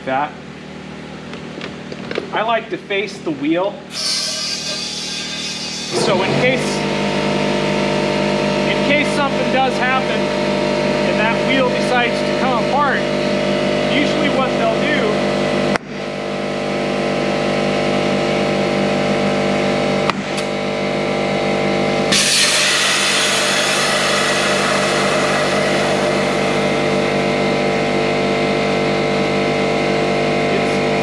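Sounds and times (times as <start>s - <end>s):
air compressor running: 3.7s - 31.0s
compressed air hissing: 3.9s - 7.0s, 22.1s - 27.9s.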